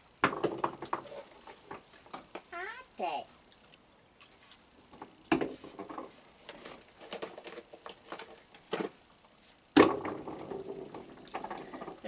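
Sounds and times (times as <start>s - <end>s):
raccoons eating: 3.2s - 5.3s.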